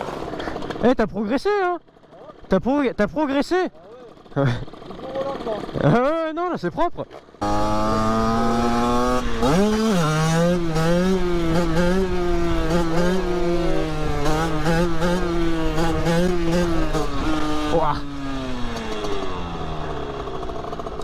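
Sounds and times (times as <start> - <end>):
two-stroke motorcycle engine revving: 0.0 - 6.4, 7.1 - 21.0.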